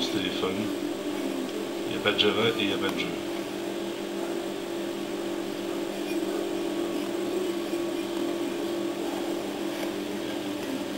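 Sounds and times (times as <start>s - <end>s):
low background hum: 0.0s - 10.9s.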